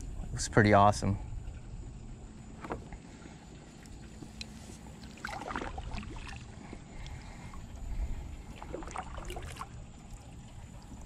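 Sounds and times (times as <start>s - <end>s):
paddle strokes in water: 2.6s - 11.0s
water splashes and drips: 3.7s - 7.4s, 8.4s - 11.0s.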